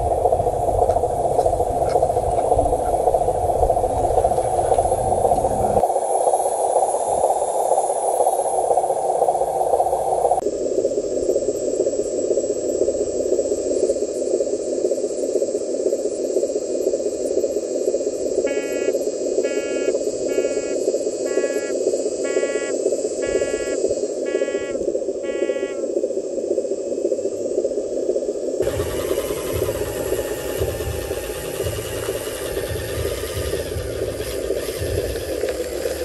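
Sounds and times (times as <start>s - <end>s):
simulated diesel engine drone: 0.0s - 5.8s, 18.5s - 25.8s, 28.6s - 36.0s
reversing beeper: 18.5s - 18.9s, 19.5s - 21.7s, 22.3s - 25.8s, 28.6s - 36.0s.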